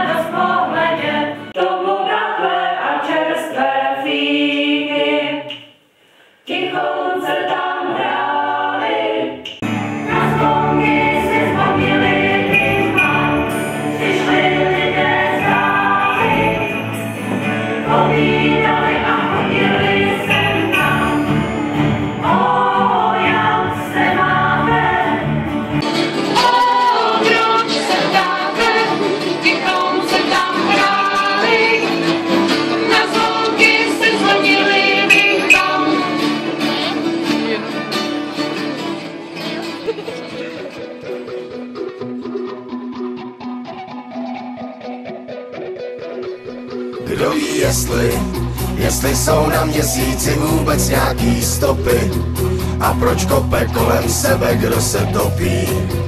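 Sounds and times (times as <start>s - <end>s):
choir singing: 0.0s - 5.7s, 6.4s - 37.0s, 47.0s - 56.0s
acoustic guitar: 9.6s - 56.0s
deep bass notes: 47.1s - 56.0s.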